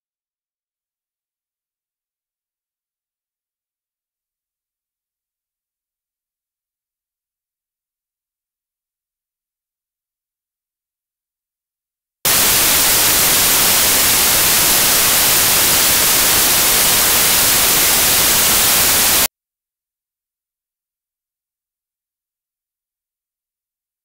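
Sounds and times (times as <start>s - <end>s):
white-noise static: 12.3s - 19.3s.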